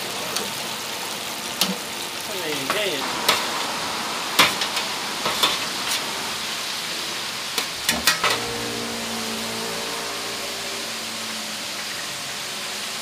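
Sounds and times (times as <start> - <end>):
oil sizzling in fryer: 0.0 - 13.0
machine hum: 3.0 - 13.0
metal utensils clinking: 7.6 - 8.7.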